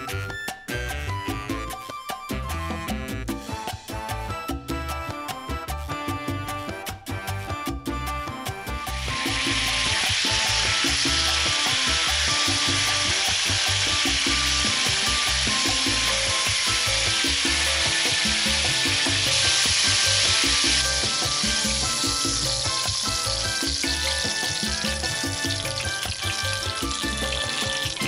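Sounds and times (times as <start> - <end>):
chicken sizzling in hot oil: 8.5 - 28.0.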